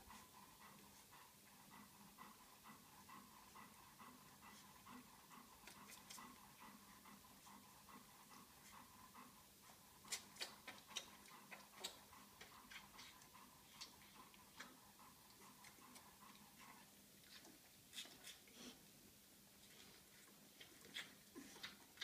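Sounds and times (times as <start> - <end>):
puppies clicking and smacking: 0.0 - 18.7, 19.5 - 22.0.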